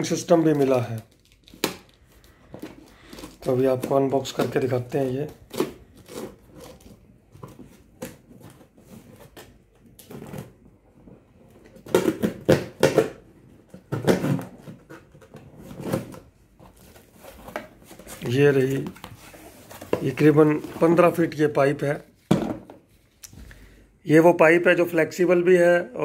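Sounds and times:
tape ripping: 0.4 - 4.0.

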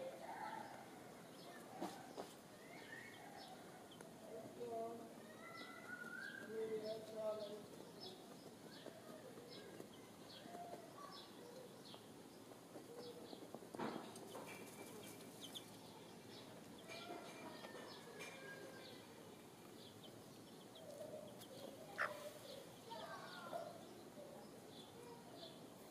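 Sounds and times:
faint high bird chirps: 1.4 - 3.7, 4.6 - 12.1, 19.8 - 25.9
hen scratching in dry soil: 3.5 - 16.6, 18.9 - 24.0.

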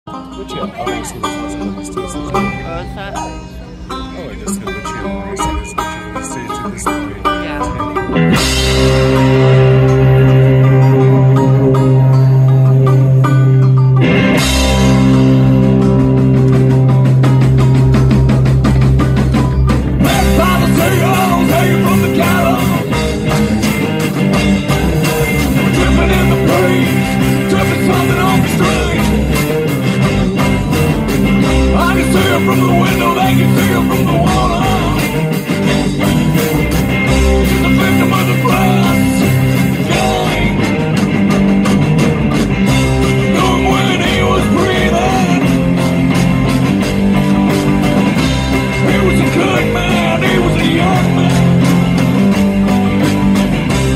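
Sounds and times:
drums: 0.0 - 53.9
electric and acoustic guitars: 0.1 - 53.9
live rock band playing: 0.1 - 53.9
upright bass: 0.1 - 53.9
person singing: 20.0 - 23.0, 25.5 - 29.6, 31.6 - 35.2, 37.4 - 40.8, 43.2 - 45.7, 48.8 - 51.7.

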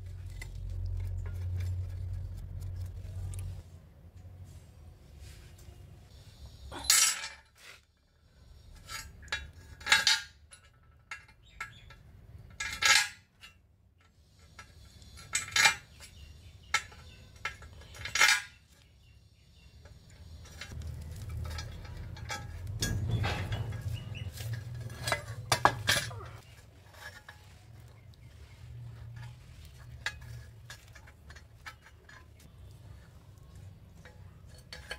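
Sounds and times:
steel rods clinking on steel tube: 6.7 - 7.6, 19.8 - 27.7, 33.9 - 34.9.

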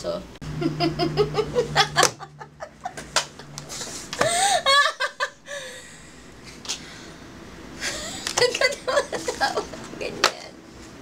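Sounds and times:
woman laughing: 0.5 - 3.2, 4.2 - 5.7, 7.8 - 9.8.

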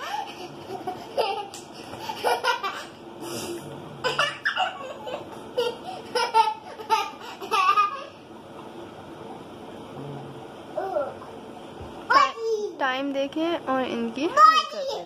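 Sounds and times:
girl laughing: 0.0 - 3.0.

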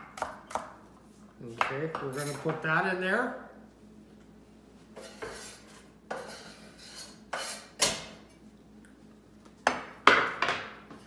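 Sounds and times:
knife knocking and scraping on pot: 5.0 - 8.0.

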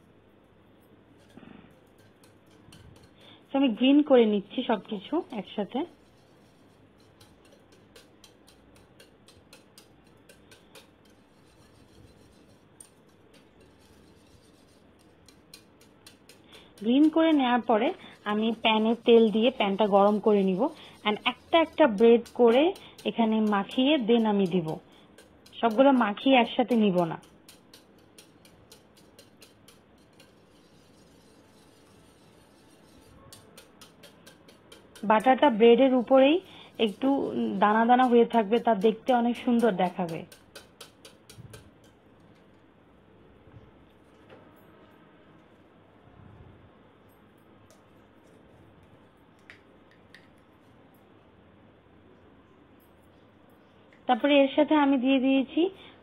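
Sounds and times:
wire whisk scraping a dish: 1.1 - 3.6, 4.5 - 42.5.

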